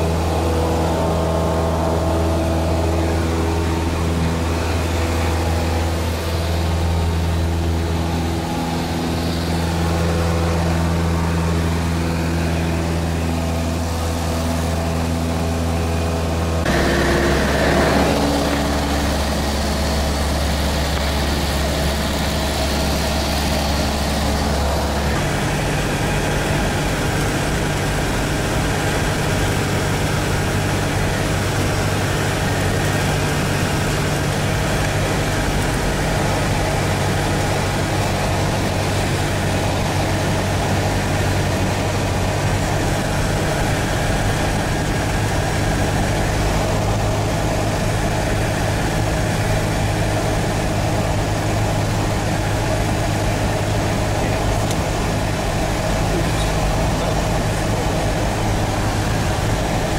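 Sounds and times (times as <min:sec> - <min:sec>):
light aircraft engine droning: 0:00.0 - 0:59.9.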